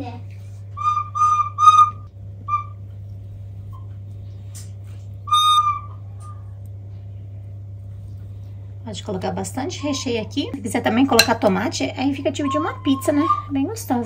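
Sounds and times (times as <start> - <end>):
whistle toots: 0.8 - 2.8, 5.3 - 6.4.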